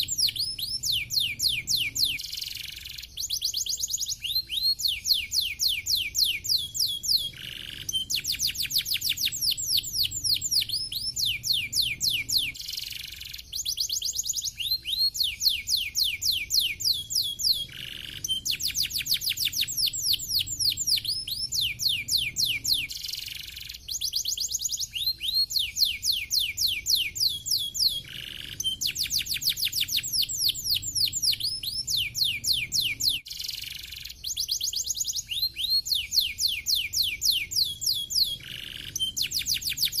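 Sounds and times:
canary singing trills: 0.0 - 40.0.

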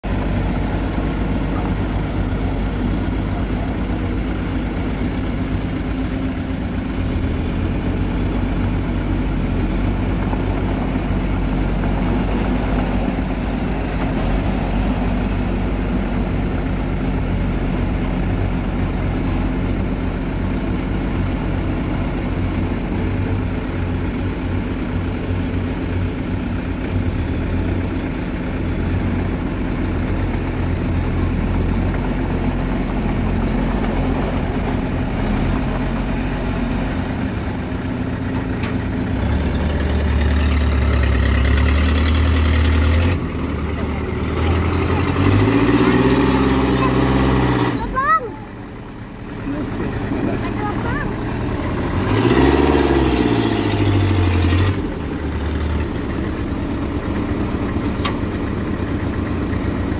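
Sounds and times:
bulldozer engine running: 0.0 - 59.9
dump truck engine: 0.0 - 59.9.

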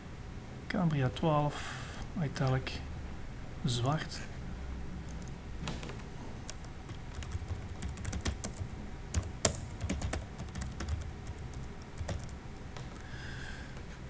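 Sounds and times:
computer keyboard typing: 5.1 - 5.4, 6.5 - 12.4.

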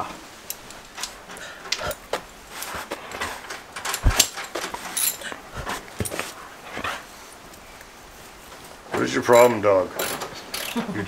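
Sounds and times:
dog sniffing: 1.5 - 7.4.

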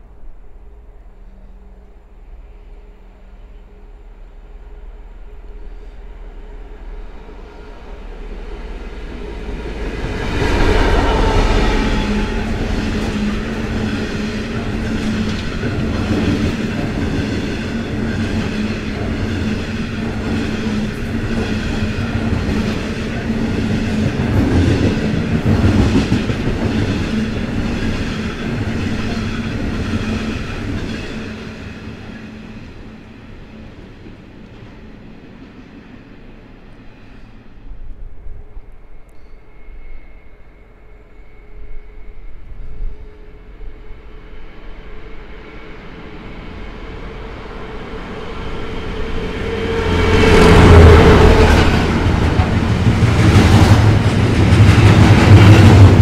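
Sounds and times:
diesel locomotive passing: 0.0 - 56.0.

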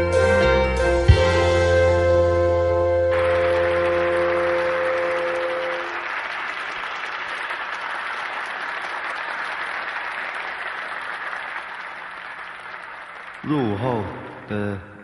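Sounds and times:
held music chord: 0.0 - 6.0
audience applause: 3.1 - 14.7.

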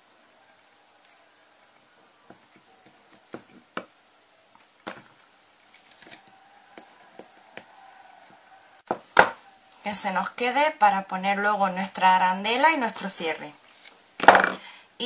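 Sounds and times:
pliers clicking on wire: 5.7 - 7.3.

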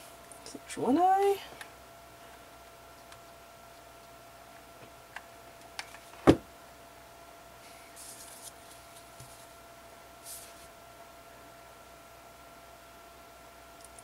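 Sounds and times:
faint steady hum: 0.0 - 14.0
soft rustling: 7.6 - 9.6, 10.2 - 10.8.

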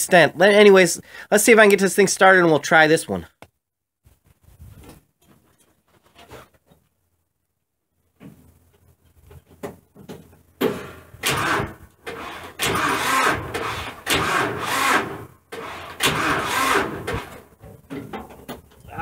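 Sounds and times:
tractor starter cranking engine: 10.6 - 17.6.

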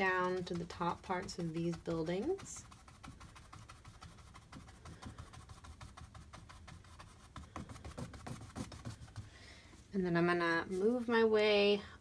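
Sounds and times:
paintbrush scratching on canvas: 0.0 - 9.3.

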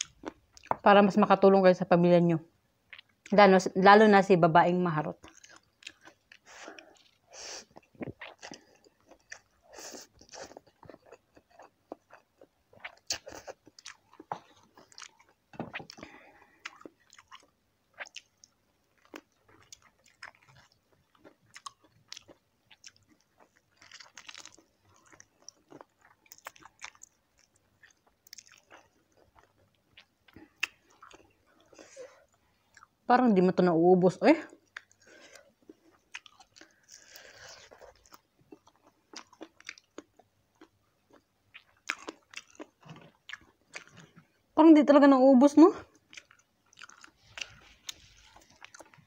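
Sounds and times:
crunchy chewing: 5.2 - 31.9, 34.6 - 44.2, 46.0 - 49.0.

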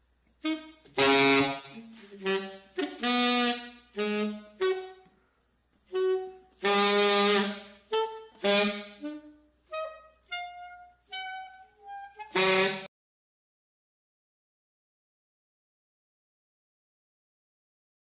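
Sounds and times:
solo alto saxophone: 0.3 - 12.9.

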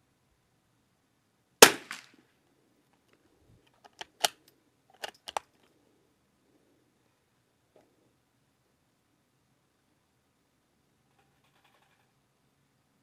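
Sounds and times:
rifle shot with echo: 1.6 - 2.1
rifle bolt metallic clicks: 3.8 - 5.5.

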